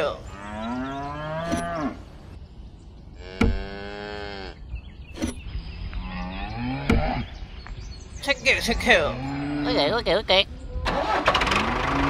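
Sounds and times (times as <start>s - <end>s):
cow mooing: 0.3s - 2.0s, 3.2s - 4.6s, 8.7s - 9.8s.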